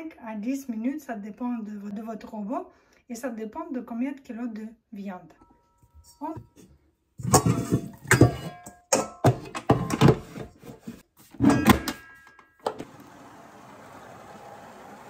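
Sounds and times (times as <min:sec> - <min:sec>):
knocks and clatter with metallic ringing: 0:05.4 - 0:10.4, 0:11.4 - 0:12.7
stand mixer running: 0:12.8 - 0:15.0.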